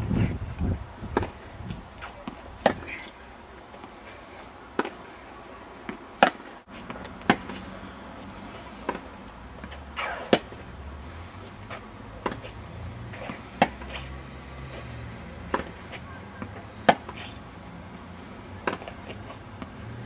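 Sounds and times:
tennis balls struck with rackets: 1.1s - 10.6s, 11.4s - 20.0s
ball bounces: 15.4s - 17.2s, 18.5s - 19.8s.

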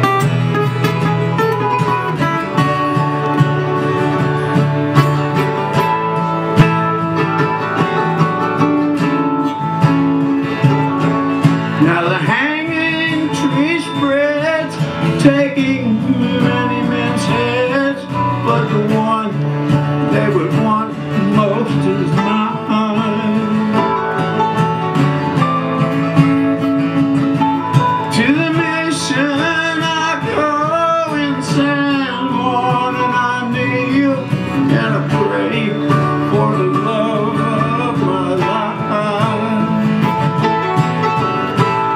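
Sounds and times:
wavering lead melody: 0.0s - 18.6s
acoustic guitars and mandolin: 0.0s - 41.9s.

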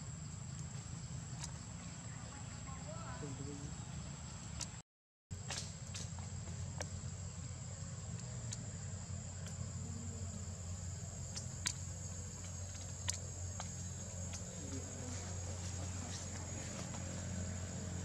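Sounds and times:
low steady hum: 5.7s - 18.0s.

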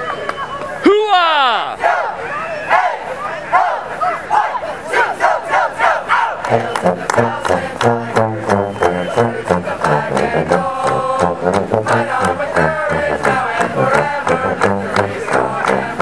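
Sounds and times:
marching band playing: 4.9s - 16.0s.

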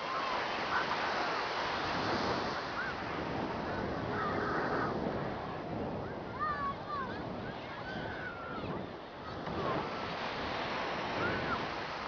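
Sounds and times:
surf: 0.0s - 12.0s.

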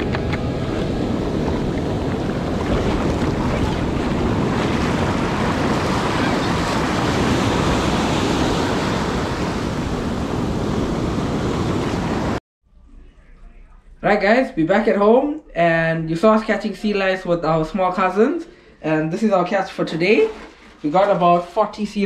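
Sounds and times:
surf washing up the beach: 0.0s - 12.4s
wind on microphone: 0.0s - 12.4s.

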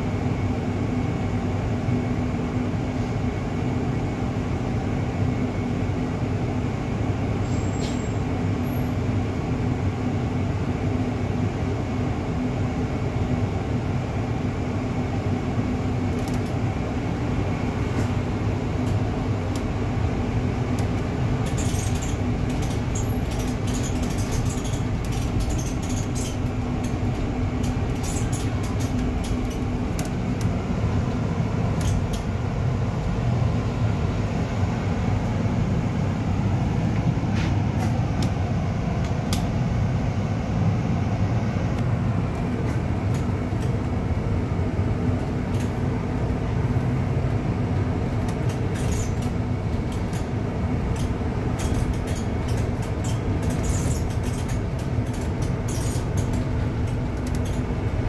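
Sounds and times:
bus engine and road hum: 0.0s - 58.0s
light clicks and rattles: 50.9s - 57.7s.

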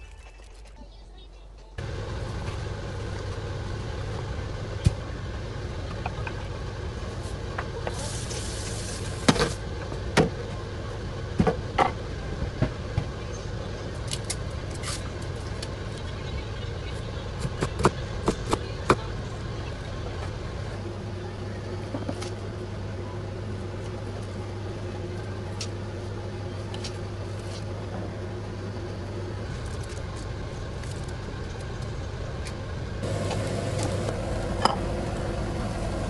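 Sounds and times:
low hum: 18.1s - 36.0s.

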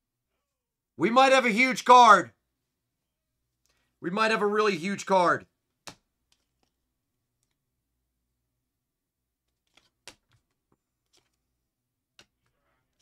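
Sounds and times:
faint clicks and taps: 5.7s - 7.6s, 12.1s - 13.0s.

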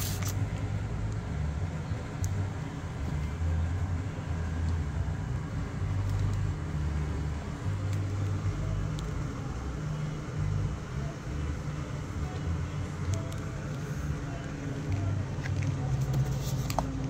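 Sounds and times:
low outdoor rumble: 0.0s - 17.0s.

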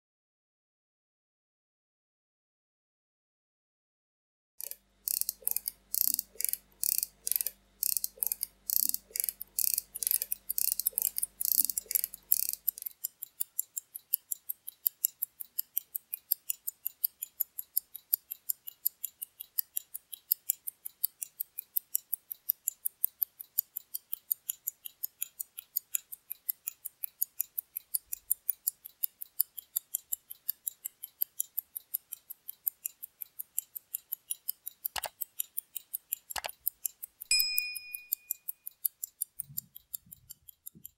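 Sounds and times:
wrist watch ticking: 4.6s - 40.9s
sharp click: 34.9s - 35.4s, 36.3s - 36.7s, 37.3s - 38.6s.

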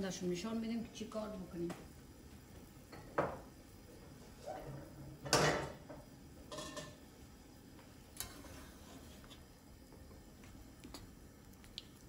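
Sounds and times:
metal kitchenware clattering: 5.3s - 5.8s, 6.5s - 7.0s.

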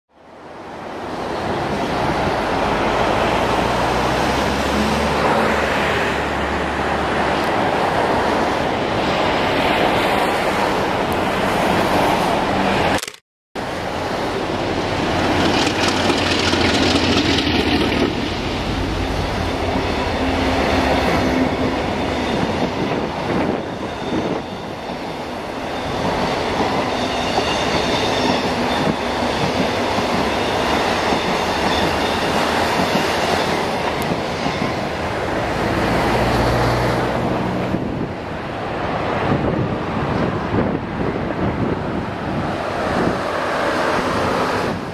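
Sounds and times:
diesel locomotive engine running: 13.6s - 23.8s
train wheels clattering over rail joints: 15.2s - 18.3s.

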